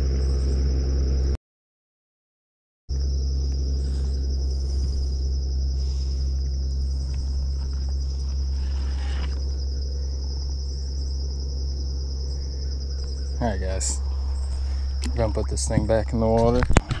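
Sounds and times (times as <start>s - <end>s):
constant low hum: 0.0s - 1.4s, 2.9s - 17.0s
insects trilling: 0.0s - 1.4s, 2.9s - 17.0s
brief rustle: 7.1s - 9.5s.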